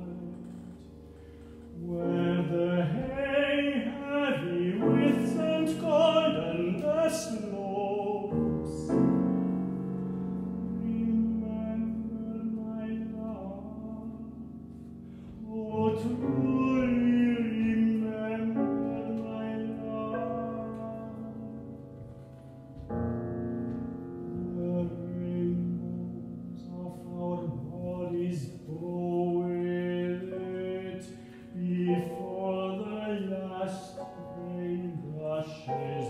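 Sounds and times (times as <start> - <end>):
piano accompaniment: 0.0 - 36.0
operatic solo voice singing: 24.4 - 36.0.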